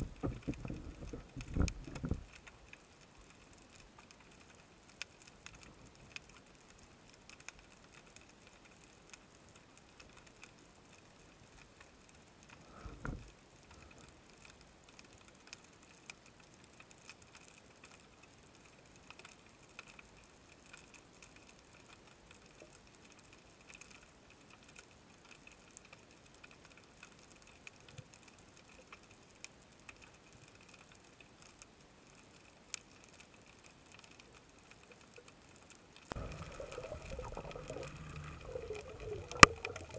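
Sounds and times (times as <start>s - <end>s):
faint underwater clicks and crackles: 0.0s - 39.9s
low hiss: 0.0s - 39.9s
low underwater thump: 36.2s - 39.9s.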